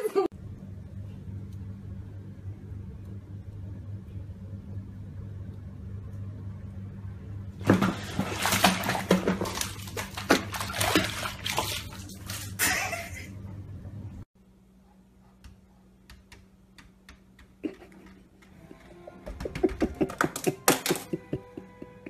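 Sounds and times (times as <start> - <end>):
steady low hum: 0.3 - 20.2
water splashing in bathtub: 7.6 - 13.2.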